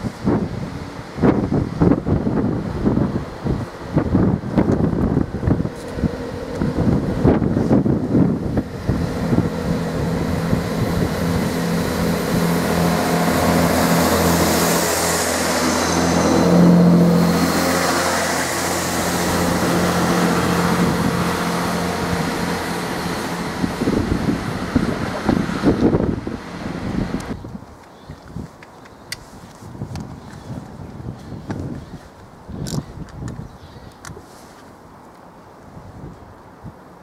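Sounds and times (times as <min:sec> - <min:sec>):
diesel train engine drone: 0:00.0 - 0:27.4
carriages hissing past: 0:08.6 - 0:27.2.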